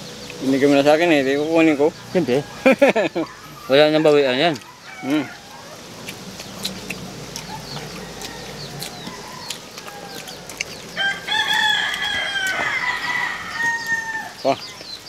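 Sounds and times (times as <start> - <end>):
rooster crowing: 2.0 - 6.1, 6.9 - 14.6.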